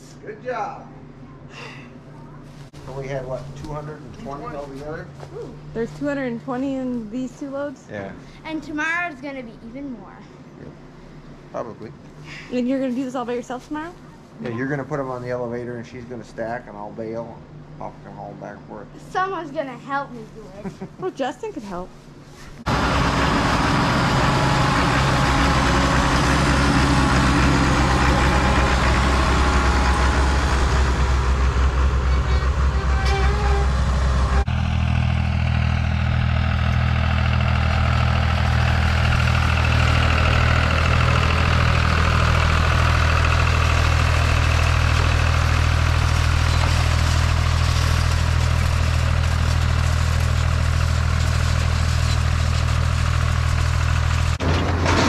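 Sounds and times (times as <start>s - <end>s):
tractor engine running: 22.6s - 55.0s
tractor pulling rake through hay: 22.7s - 55.0s.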